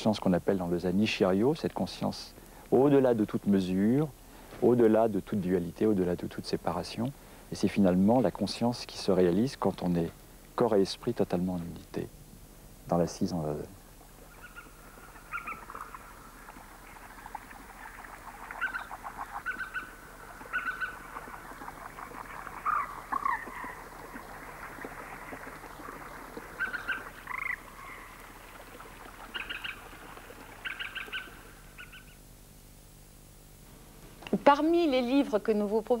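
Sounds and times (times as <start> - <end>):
frogs croaking in trills: 13.8 - 32.4
frog chorus: 14.0 - 32.2
bird chirps: 14.3 - 17.3, 18.4 - 21.4, 22.5 - 23.8, 26.4 - 28.1, 29.3 - 29.9, 30.6 - 32.2.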